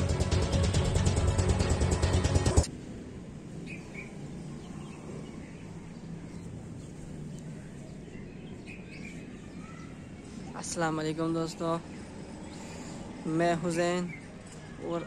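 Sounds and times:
bird chirps: 3.6 - 10.6.

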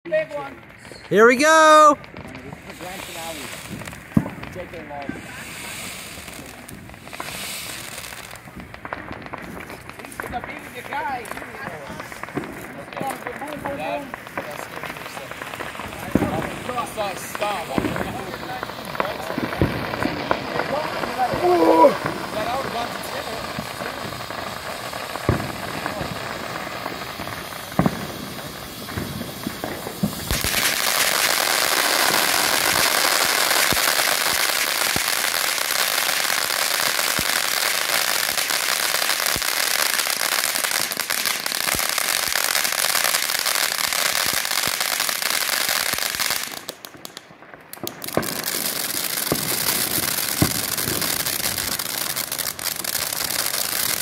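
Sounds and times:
firework hissing with crackling pops: 0.1 - 54.0.

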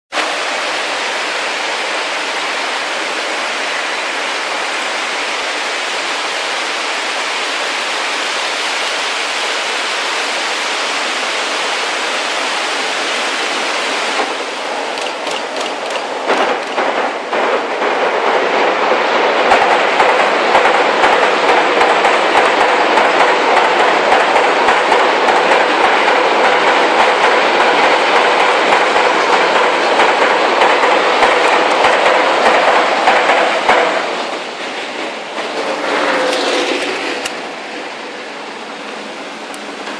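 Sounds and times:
train wheels clickety-clack: 11.1 - 39.9.

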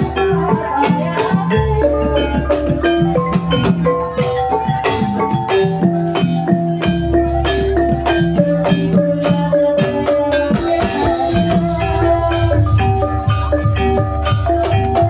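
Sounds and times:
drum strokes: 0.0 - 15.0.

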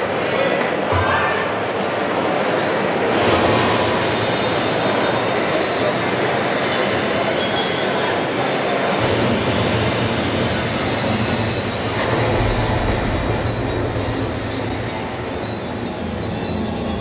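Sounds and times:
rumbling and hissing sound effects: 9.0 - 17.0.

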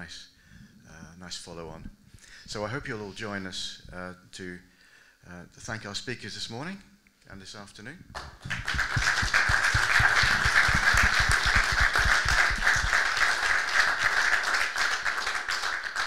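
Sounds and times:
audience applauding: 8.2 - 16.0.

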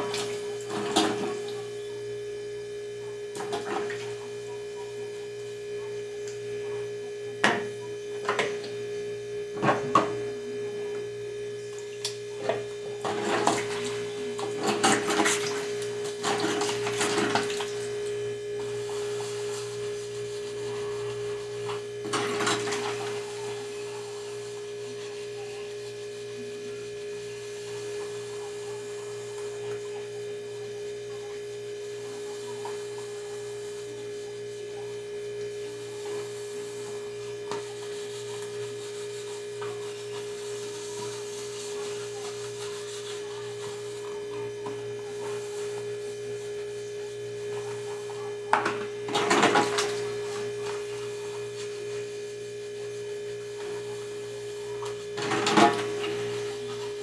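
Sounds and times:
steady electrical hum: 0.0 - 57.0.

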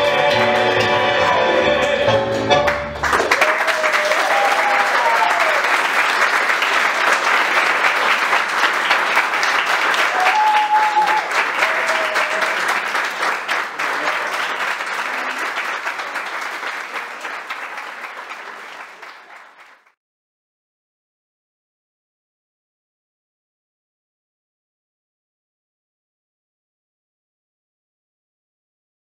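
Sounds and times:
audience applauding: 2.6 - 20.0.

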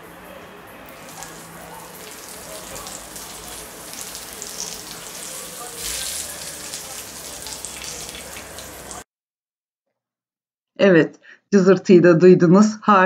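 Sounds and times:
hot butter sizzling and crackling: 0.2 - 9.0.

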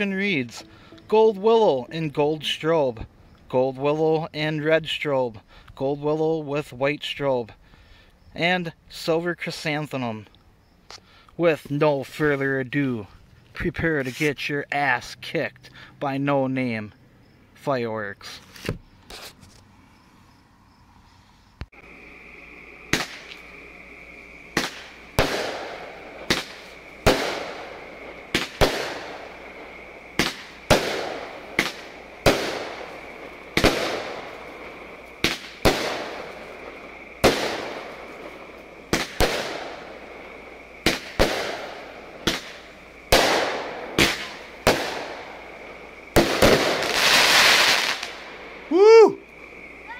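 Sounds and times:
firework hiss and crackle: 0.0 - 3.5, 18.2 - 49.9
firework bangs: 22.8 - 48.7.

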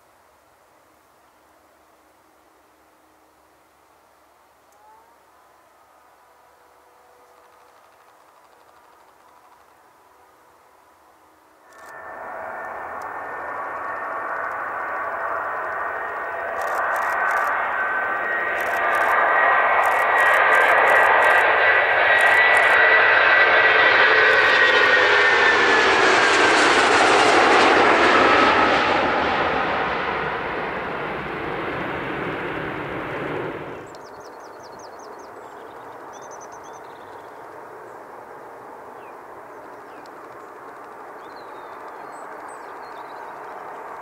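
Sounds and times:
jet airliner engines whining: 11.7 - 44.0.

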